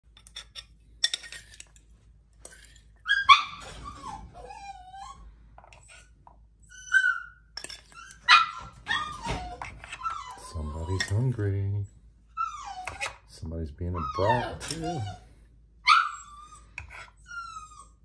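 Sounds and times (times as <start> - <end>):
dog whining and yelping: 3.0 - 11.5, 12.3 - 13.3, 13.9 - 18.0
metal spoon clinking on bowl: 7.6 - 8.0.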